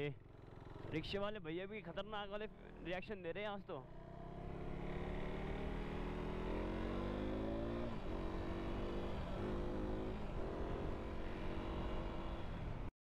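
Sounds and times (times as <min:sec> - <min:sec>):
motorcycle engine revving: 0:03.8 - 0:12.4.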